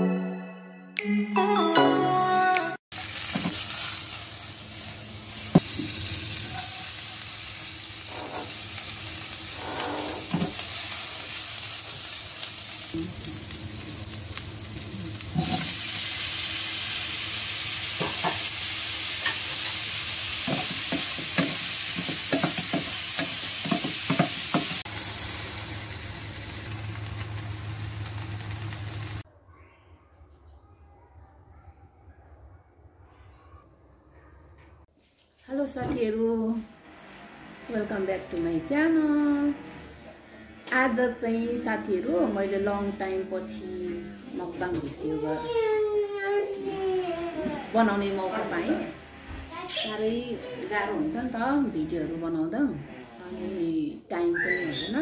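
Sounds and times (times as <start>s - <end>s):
food sizzling in a pan: 2.9s - 29.2s
utensil knocking and scraping a pan: 9.6s - 10.6s, 20.4s - 24.8s.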